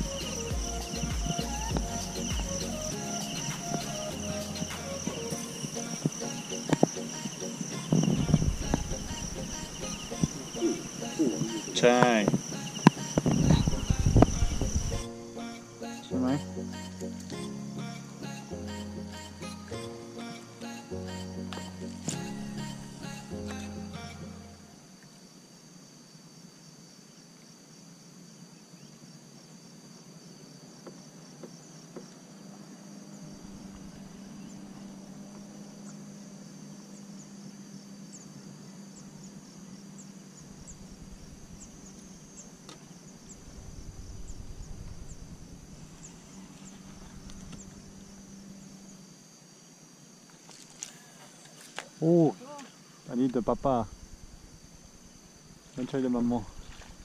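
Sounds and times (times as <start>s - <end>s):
faint steady hum: 0.0s - 57.0s
insects chirping and buzzing: 0.0s - 57.0s
low rumble: 43.3s - 48.2s, 53.6s - 55.1s.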